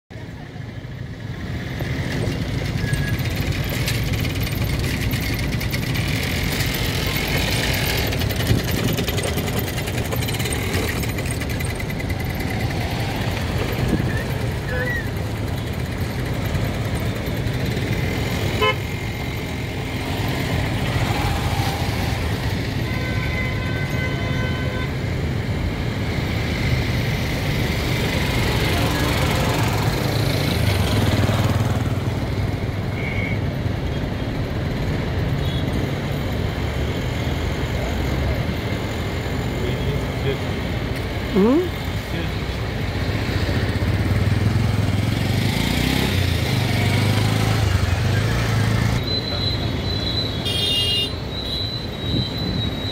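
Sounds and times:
roadside traffic noise: 0:00.1 - 0:52.9
motorcycle engines running: 0:00.2 - 0:24.0, 0:25.0 - 0:52.9
vehicle horn: 0:18.5 - 0:19.0, 0:22.8 - 0:25.0, 0:50.4 - 0:51.7.

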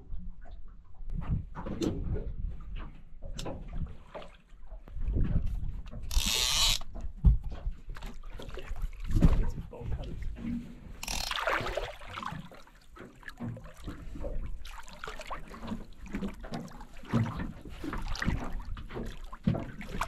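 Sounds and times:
wind rumble on microphone: 0:00.0 - 0:04.0, 0:04.9 - 0:06.1, 0:06.9 - 0:11.0
knocks and splashes on hull: 0:00.0 - 0:06.1, 0:06.8 - 0:20.0.

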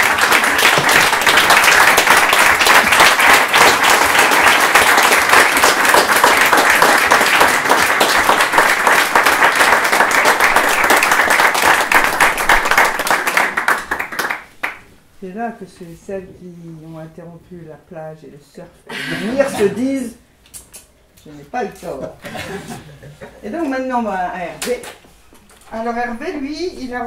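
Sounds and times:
audience applauding: 0:00.0 - 0:14.8.

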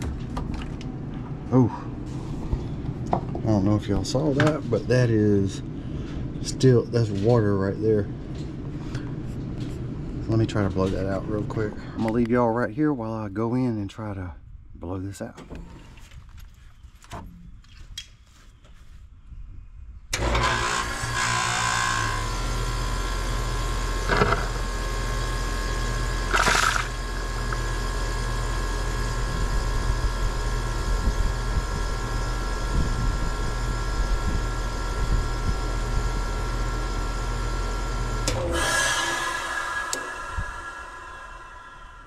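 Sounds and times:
machine humming and whining: 0:20.1 - 0:42.0.

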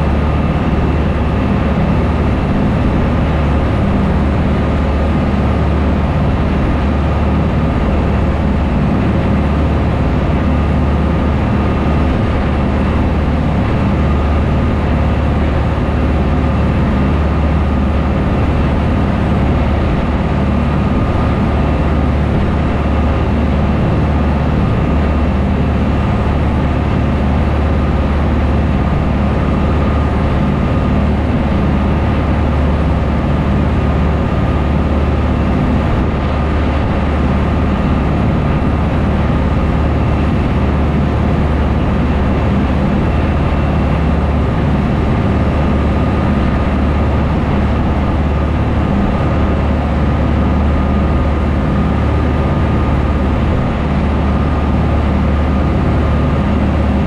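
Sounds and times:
boat engines droning: 0:00.0 - 0:57.0
rush of churning wake: 0:00.0 - 0:57.0.

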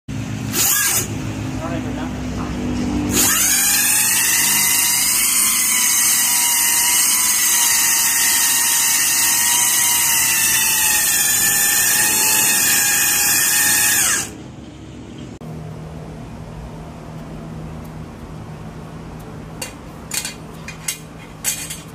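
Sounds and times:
electric motor whining: 0:00.5 - 0:01.1, 0:03.1 - 0:14.4.

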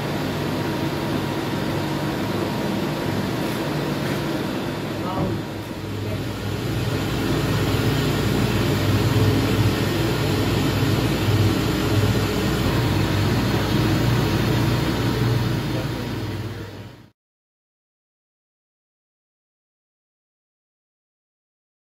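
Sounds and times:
dust extraction rushing noise: 0:00.0 - 0:16.9
low motor hum: 0:00.0 - 0:17.1.

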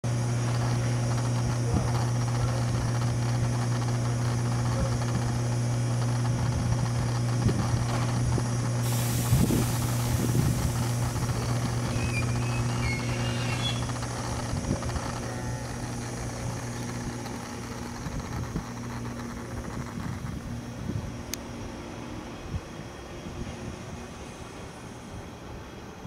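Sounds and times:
electric train humming: 0:00.0 - 0:26.0
air hissing: 0:08.8 - 0:15.1.

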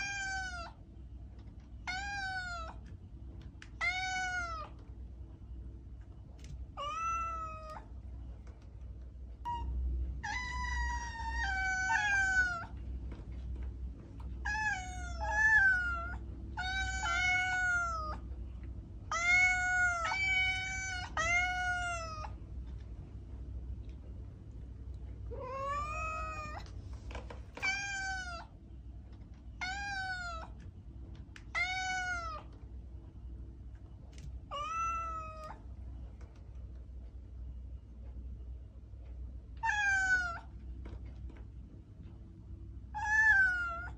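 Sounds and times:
cat meowing: 0:00.0 - 0:00.8, 0:01.8 - 0:02.9, 0:03.7 - 0:04.8, 0:06.8 - 0:07.9, 0:09.4 - 0:12.8, 0:14.4 - 0:18.2, 0:19.1 - 0:22.4, 0:25.3 - 0:26.7, 0:27.6 - 0:28.5, 0:29.6 - 0:30.6, 0:31.5 - 0:32.5, 0:34.5 - 0:35.6, 0:39.6 - 0:40.5, 0:42.9 - 0:43.9.

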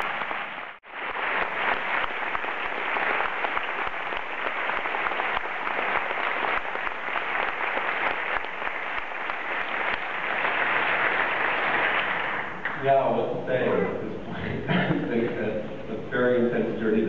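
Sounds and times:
audience applauding: 0:00.0 - 0:12.8.

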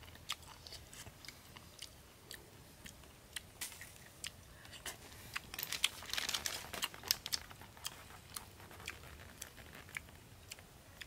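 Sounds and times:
small clicks and crackles: 0:04.7 - 0:10.2.

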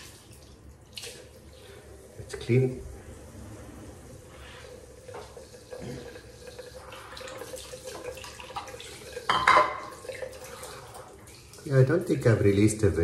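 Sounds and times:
tap water running into sink: 0:04.6 - 0:12.8.

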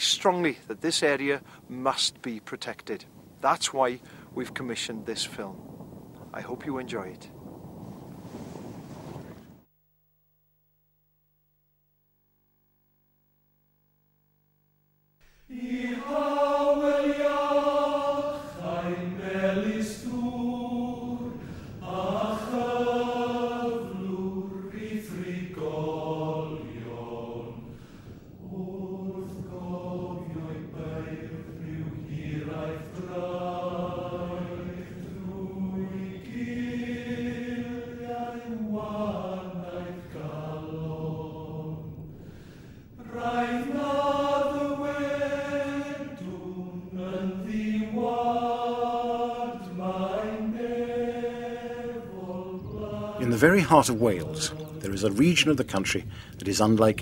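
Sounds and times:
person singing unaccompanied: 0:15.2 - 0:27.7, 0:28.4 - 0:42.0, 0:43.0 - 0:55.8.

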